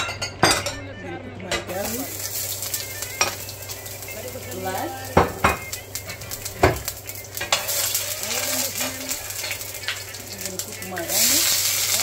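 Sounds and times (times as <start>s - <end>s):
garlic sizzling in oil: 1.7s - 12.0s
metal spoon knocking on pan: 3.1s - 3.5s, 5.1s - 7.8s.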